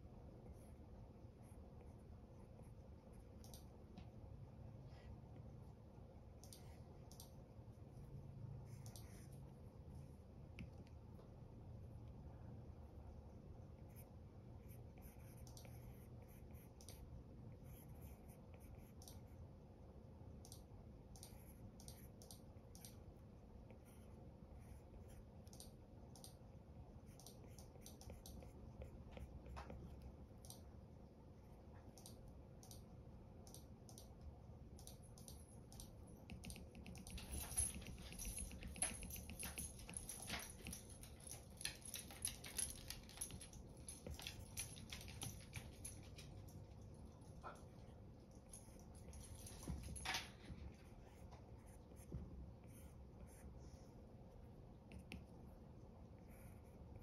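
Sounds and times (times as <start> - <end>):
pencil tapping on glass screen: 34.9 - 40.0.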